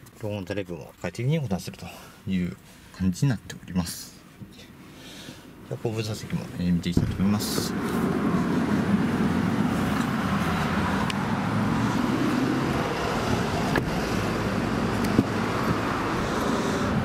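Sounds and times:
road traffic rumble: 0:04.0 - 0:17.0
handling clicks and knocks: 0:15.0 - 0:15.8.

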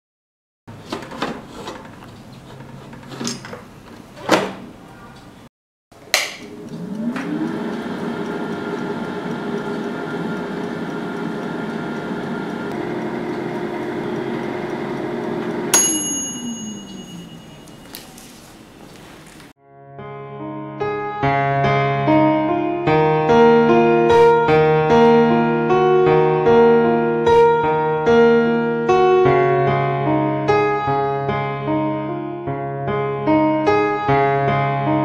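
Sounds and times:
air fryer fan whirring: 0:06.0 - 0:17.8
bell-like ding: 0:15.7 - 0:18.2.

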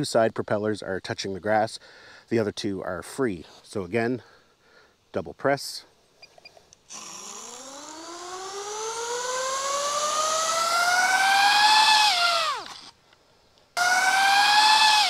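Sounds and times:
drone motors whining: 0:06.9 - 0:13.0, 0:13.8 - 0:15.0.

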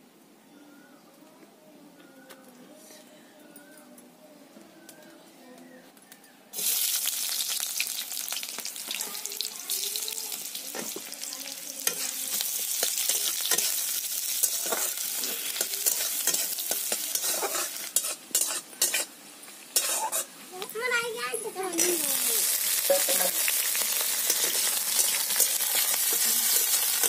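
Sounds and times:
food sizzling in hot oil: 0:06.5 - 0:27.0
metal spatula scraping pan: 0:14.4 - 0:19.1, 0:19.8 - 0:20.3.

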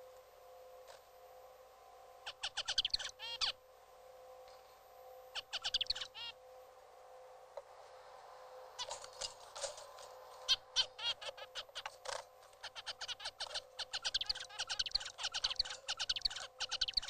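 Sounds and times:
faint steady tone: 0:00.0 - 0:17.0
finch singing rapid notes: 0:02.2 - 0:03.6, 0:05.4 - 0:06.4, 0:10.5 - 0:11.9, 0:12.6 - 0:17.0.

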